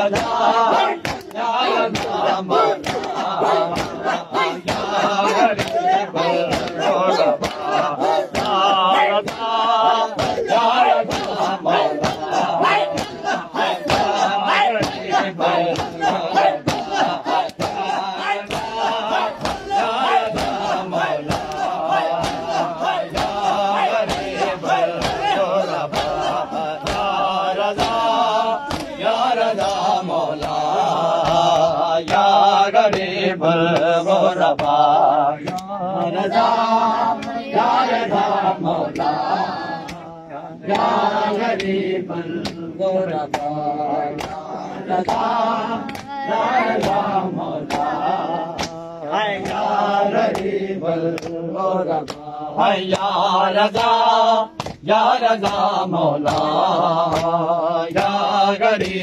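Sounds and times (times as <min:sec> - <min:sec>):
men chanting together: 0:00.0 - 0:59.0
open-hand slaps on chest: 0:00.1 - 0:06.8, 0:07.4 - 0:13.3, 0:15.7 - 0:17.8, 0:18.4 - 0:24.4, 0:25.0 - 0:29.0, 0:29.6 - 0:33.1, 0:33.7 - 0:34.8, 0:35.4 - 0:36.2, 0:37.1 - 0:37.4, 0:38.9 - 0:39.1, 0:39.8 - 0:40.1, 0:42.4 - 0:42.6, 0:43.3 - 0:43.5, 0:44.1 - 0:46.1, 0:46.8 - 0:47.0, 0:47.6 - 0:48.8, 0:49.4 - 0:50.5, 0:51.1 - 0:51.4, 0:52.0 - 0:52.3, 0:52.9 - 0:54.0, 0:54.6 - 0:59.0.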